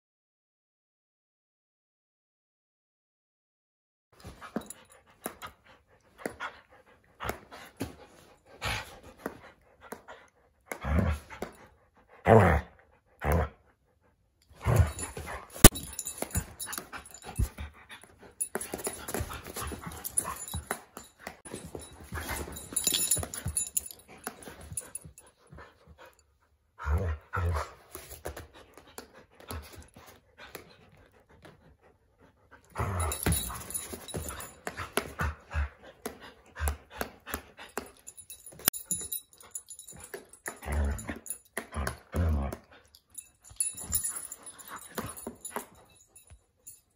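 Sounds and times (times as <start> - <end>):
dog teeth clacking: 14.6 - 25.3, 36.0 - 46.4.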